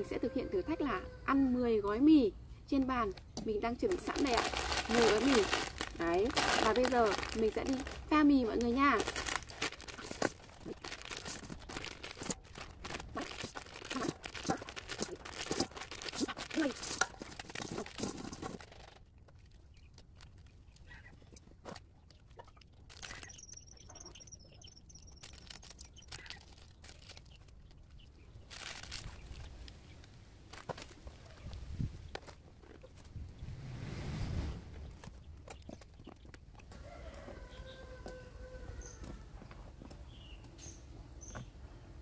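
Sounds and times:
sachets rustling: 3.8 - 18.8, 22.8 - 23.6, 24.9 - 31.0
plastic packets crinkling and tearing: 3.8 - 23.8, 24.8 - 31.2.

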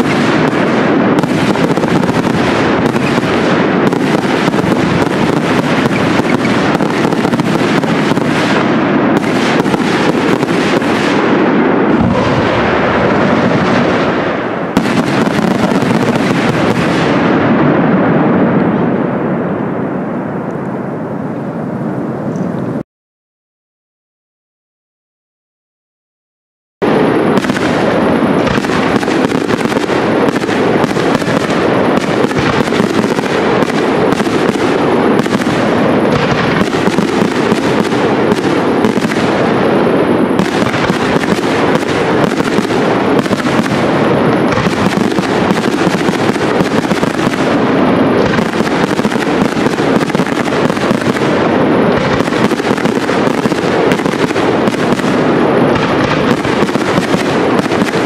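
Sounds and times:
fireworks bursts and crackling: 0.0 - 20.8, 26.8 - 58.0.

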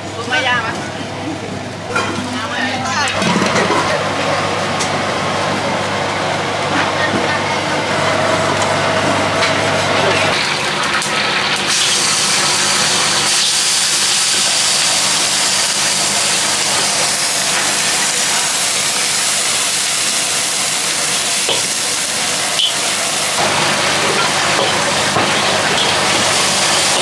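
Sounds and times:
food sizzling in a wok: 10.3 - 27.0.

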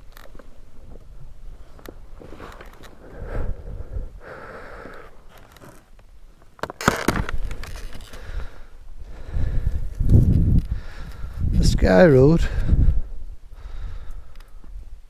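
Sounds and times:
wind rush on microphone: 3.0 - 4.2, 8.2 - 15.0.

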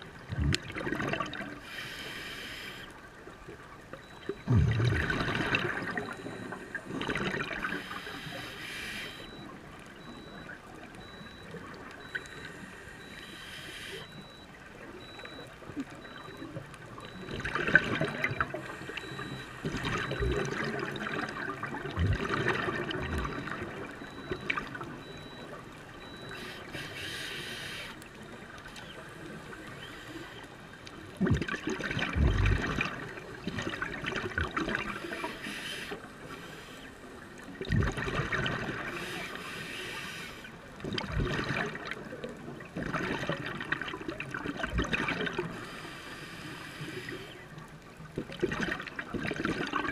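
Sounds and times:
exhaled air bubbles gurgling: 0.0 - 1.6, 4.0 - 8.3, 15.0 - 26.4, 31.1 - 35.1, 37.6 - 39.0, 40.8 - 45.6, 48.0 - 49.9
regulator inhalation hiss: 1.7 - 2.9, 7.8 - 9.2, 12.6 - 14.0, 26.3 - 27.9, 35.3 - 36.8, 39.0 - 40.5, 45.6 - 47.4.

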